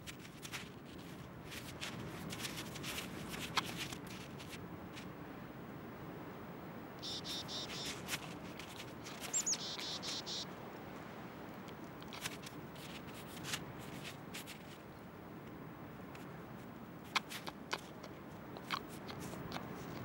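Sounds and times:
animal chewing with crunches: 0:00.0 - 0:04.6, 0:17.1 - 0:20.0
high-pitched chirping squeaks: 0:07.0 - 0:08.0, 0:09.1 - 0:10.4.

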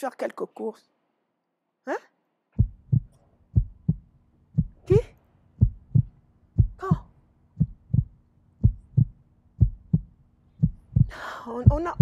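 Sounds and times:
heartbeat thumps: 0:02.6 - 0:12.0.

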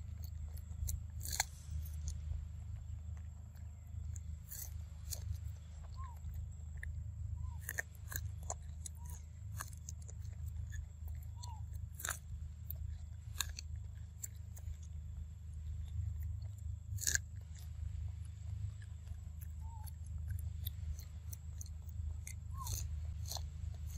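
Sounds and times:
monkey chewing corn: 0:00.0 - 0:23.9.

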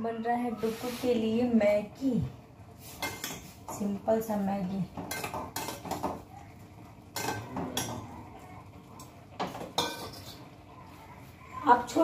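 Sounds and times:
cutlery clinking and scraping: 0:02.9 - 0:03.8, 0:05.0 - 0:06.2, 0:07.1 - 0:08.1, 0:09.4 - 0:10.6.

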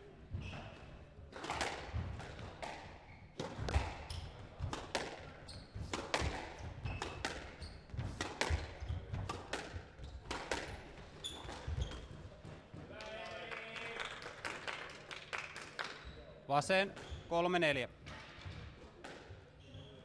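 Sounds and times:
squash ball hitting rackets and walls: 0:00.4 - 0:12.8, 0:18.0 - 0:19.5
shoes squeaking on wooden floor: 0:10.0 - 0:12.7.

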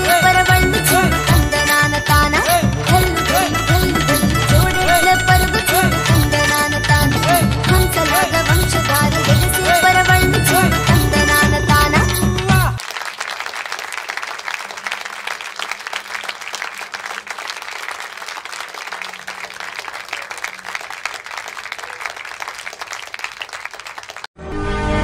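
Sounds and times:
recorded dance music: 0:00.0 - 0:12.8
audience applauding: 0:02.8 - 0:09.6, 0:12.1 - 0:24.3.

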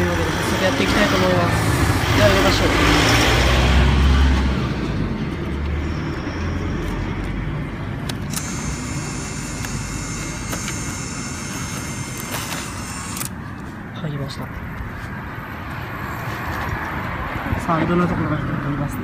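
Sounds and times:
bill acceptor click: 0:08.2 - 0:13.3
high whine of feed mechanism: 0:08.2 - 0:13.4.

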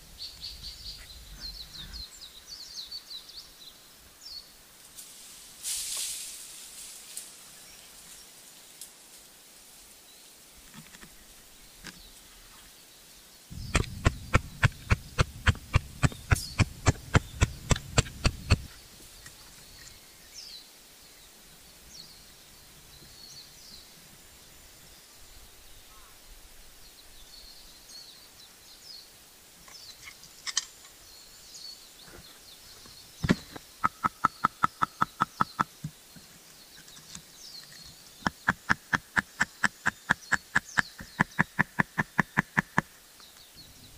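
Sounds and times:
birds chirping faintly: 0:00.0 - 0:05.0, 0:09.8 - 0:43.9
hammer blows on wood: 0:13.5 - 0:18.7.

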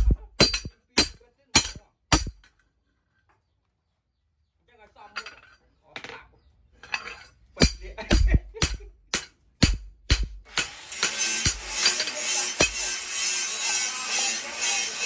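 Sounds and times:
mallet knocking steel blade: 0:00.0 - 0:02.4, 0:07.6 - 0:10.4.

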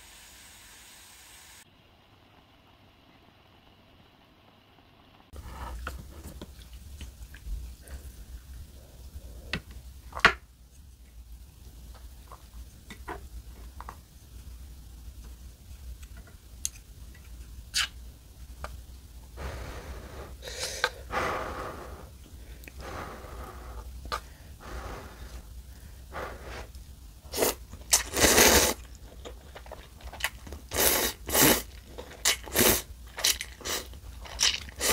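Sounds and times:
person blowing on food: 0:27.3 - 0:28.8.

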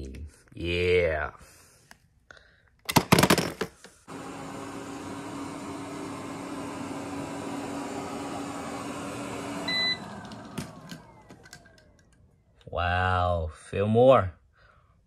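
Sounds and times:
toy cars clattering in plastic bin: 0:02.9 - 0:03.8
robot vacuum humming: 0:04.1 - 0:12.4.

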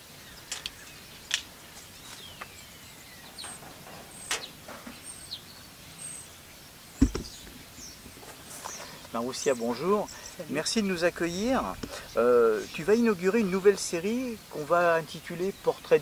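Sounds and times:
low thump: 0:07.0 - 0:07.6.

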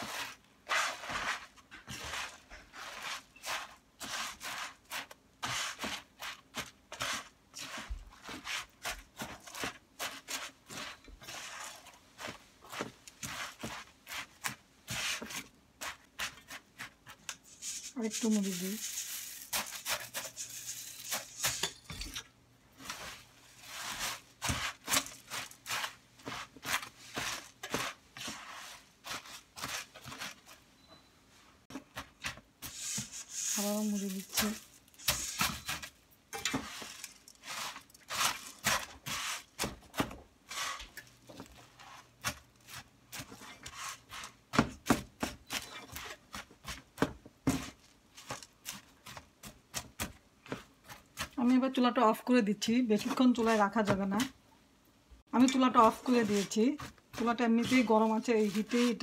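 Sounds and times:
spatula scraping in a pan: 0:00.0 - 0:21.8, 0:22.8 - 0:44.6, 0:45.2 - 0:46.9, 0:55.4 - 0:59.0
puffed rice pouring: 0:17.5 - 0:21.6.

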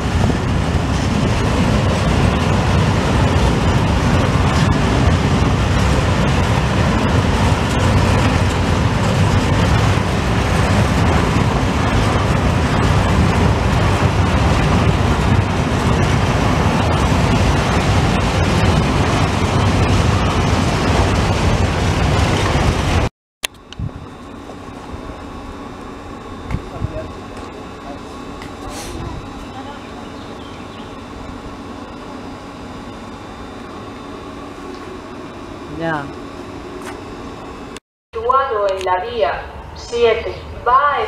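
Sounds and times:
train wheels rumbling on rails: 0:00.0 - 0:23.1, 0:23.8 - 0:37.1.

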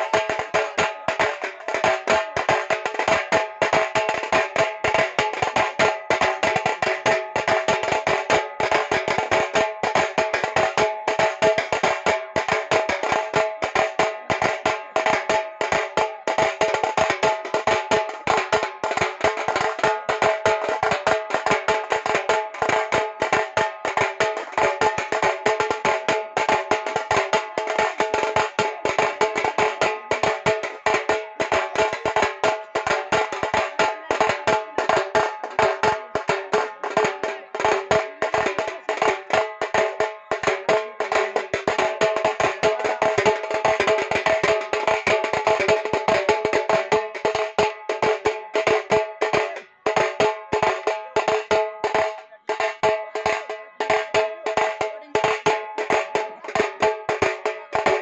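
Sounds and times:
fast drumming: 0:00.0 - 0:58.0.

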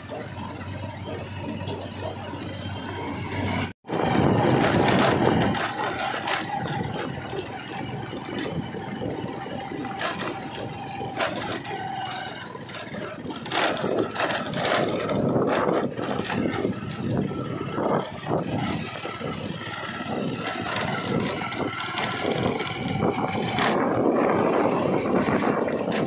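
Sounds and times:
body rattling and clattering: 0:00.0 - 0:26.0
diesel engine running: 0:00.0 - 0:26.0.

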